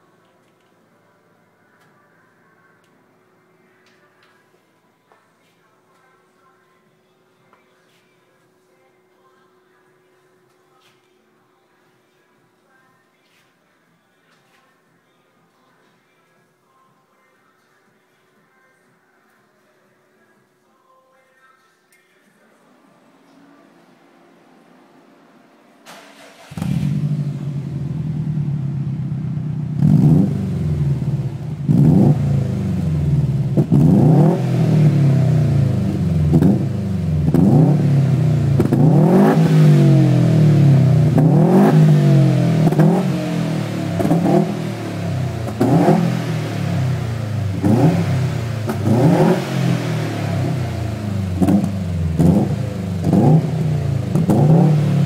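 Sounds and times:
car engine starting and revving: 25.8s - 55.0s.

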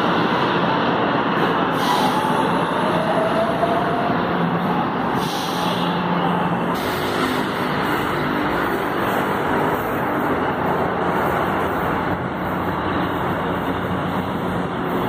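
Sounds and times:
rumble of passing vehicles: 0.0s - 15.0s.

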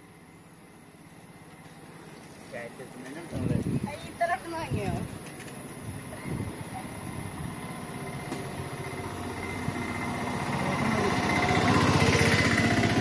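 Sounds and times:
rickshaw engine passing by: 4.4s - 13.0s.

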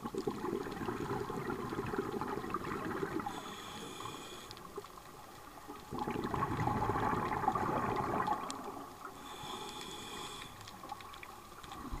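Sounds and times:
exhaled bubbles underwater: 0.0s - 12.0s
regulator hissing inhalation: 3.2s - 4.7s, 9.2s - 10.7s.

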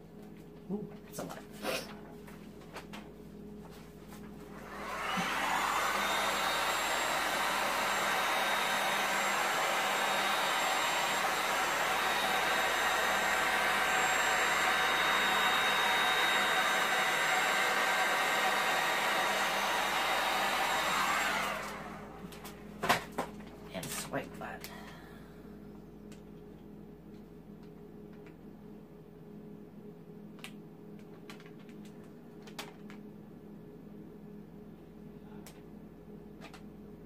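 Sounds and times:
hot-air blower running: 3.6s - 25.6s.

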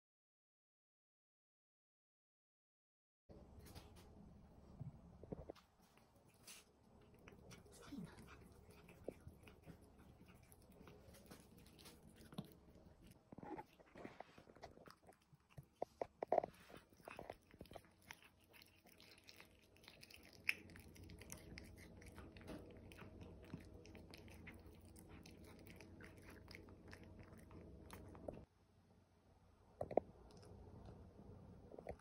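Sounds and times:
cat chewing food: 4.6s - 28.5s, 29.8s - 31.0s.

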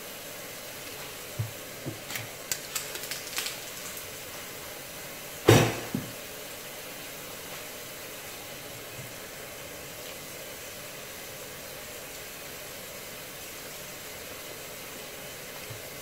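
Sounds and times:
sharp knock: 5.5s - 6.1s.

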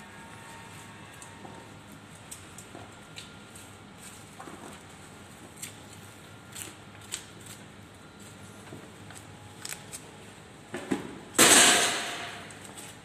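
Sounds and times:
loud ringing bang: 11.4s - 12.4s.

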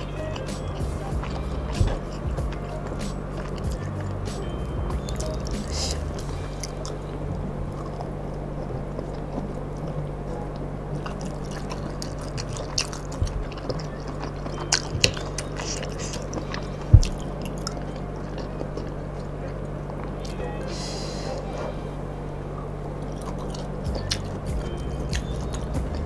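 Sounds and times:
chewing with wet mouth sounds: 0.0s - 26.0s
steady low hum: 0.0s - 26.0s
dull thump: 16.9s - 17.2s.

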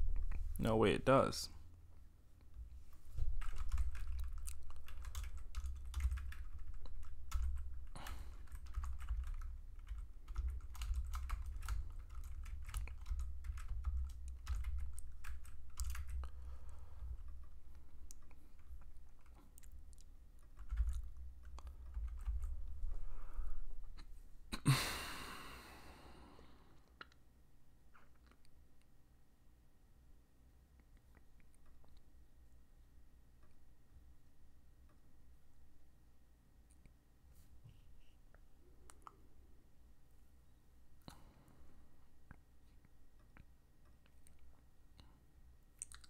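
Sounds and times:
typing on computer keyboard: 3.3s - 16.4s, 17.0s - 22.8s.

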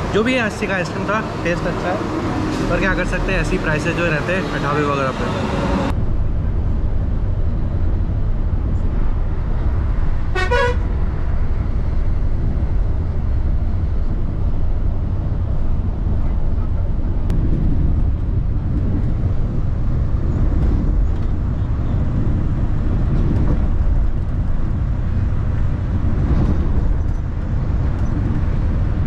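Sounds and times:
horn toot: 10.4s - 10.9s.

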